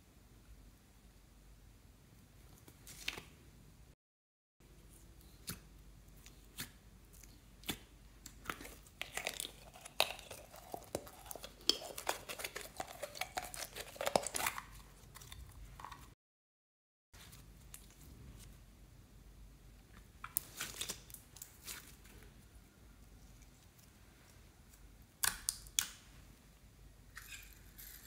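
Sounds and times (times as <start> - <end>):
slime crackling and squishing: 6.2 - 15.6.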